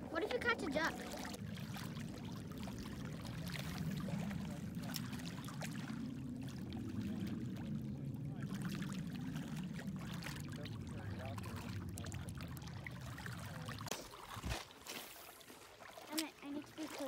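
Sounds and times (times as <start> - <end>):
low rumble: 0.0 - 14.6
small waves lapping on pebbles: 13.1 - 17.0.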